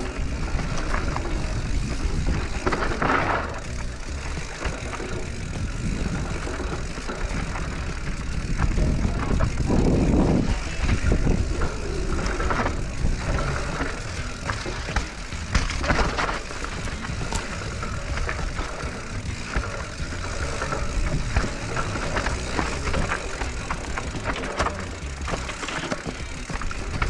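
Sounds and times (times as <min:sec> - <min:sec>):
bike chain and frame rattling: 0:00.0 - 0:27.0
bike tyres rolling over dirt: 0:00.0 - 0:27.0
wind on microphone: 0:08.1 - 0:13.8.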